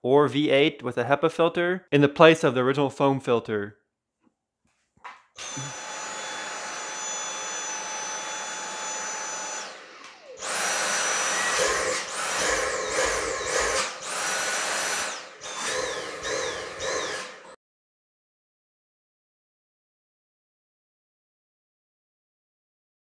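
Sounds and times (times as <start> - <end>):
vacuum motor whining: 5.4 - 17.6.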